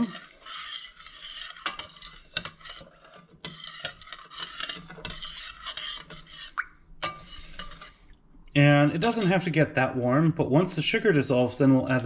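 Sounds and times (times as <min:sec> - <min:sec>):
metal spoon scraping a pot: 0:00.0 - 0:08.1, 0:08.9 - 0:09.6
spoon clinking against pot: 0:07.0 - 0:08.0, 0:09.0 - 0:09.4.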